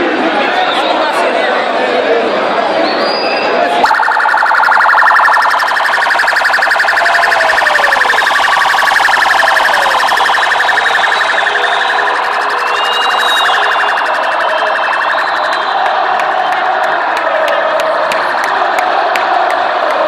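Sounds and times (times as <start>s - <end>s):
police siren warbling: 3.8s - 15.8s.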